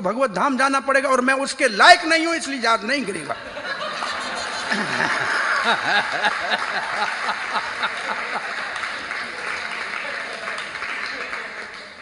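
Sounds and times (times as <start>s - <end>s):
audience laughing: 3.2s - 9.9s
man laughing in pulses: 3.8s - 8.4s
audience clapping: 4.6s - 12.0s.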